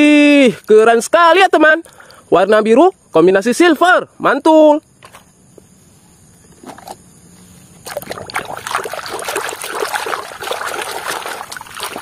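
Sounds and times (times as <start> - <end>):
water sloshing in a basin: 7.7 - 12.0.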